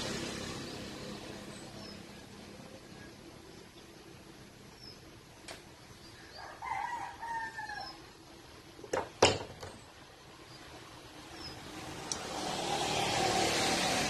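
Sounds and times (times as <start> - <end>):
rooster crowing: 6.2 - 8.1
sharp knocks: 8.9 - 9.8.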